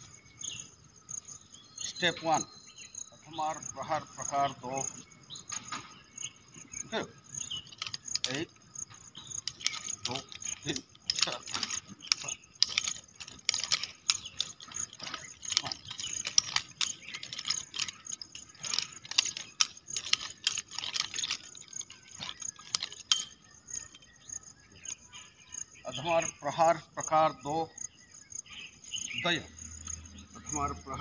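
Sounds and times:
nunchaku clacking and rattling: 7.2s - 25.0s.

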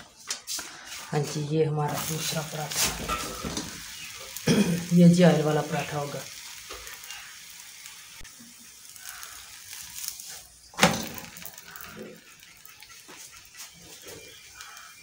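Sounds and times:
faint kitchen sounds: 0.0s - 15.0s
flatbread flipped on griddle knock: 10.2s - 11.6s.

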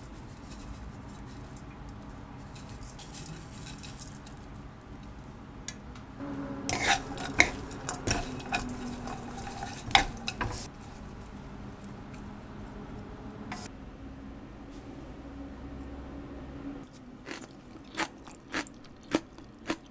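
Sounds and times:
chopsticks clicking: 6.7s - 10.7s
wooden spatula scraping wok: 6.7s - 11.5s, 13.5s - 13.7s.

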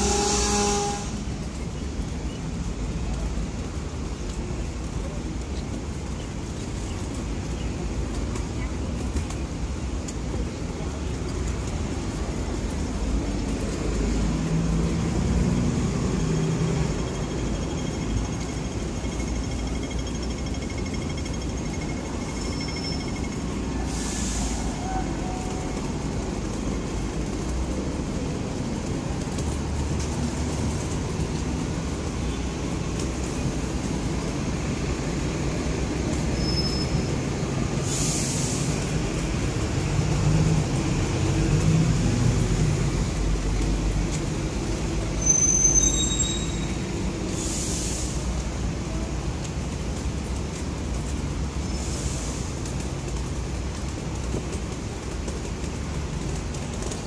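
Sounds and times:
buses and cars passing: 0.0s - 57.0s.

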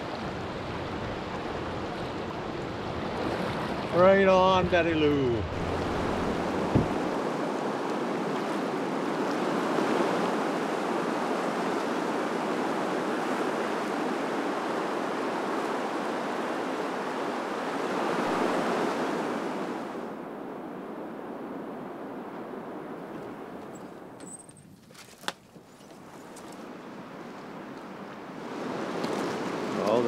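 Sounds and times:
river rapids rushing: 0.0s - 20.0s.

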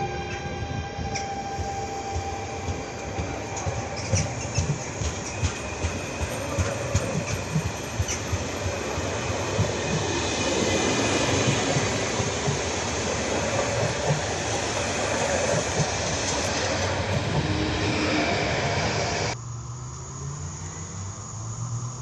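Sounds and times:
train wheels rumbling on rail: 0.0s - 19.4s
wheels clacking over rail joints: 2.1s - 18.0s.

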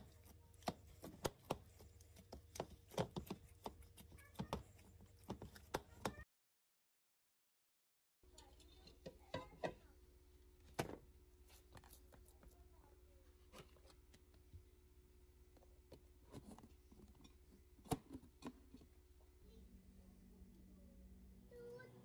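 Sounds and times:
low steady hum: 8.3s - 22.0s.

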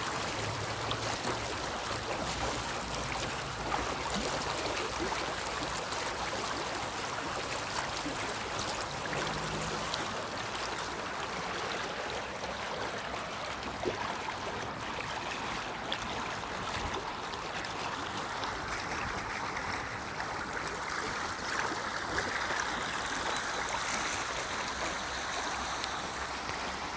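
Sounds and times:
stream water flowing: 0.0s - 26.9s.

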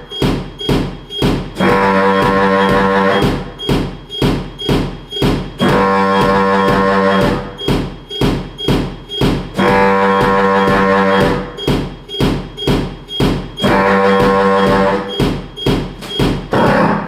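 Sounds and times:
pulsing electronic beat: 0.0s - 17.0s.

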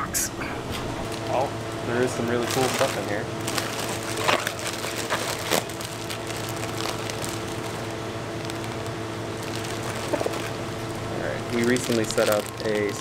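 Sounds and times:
steady low hum: 0.0s - 13.0s
plastic bags crinkling: 1.0s - 13.0s.

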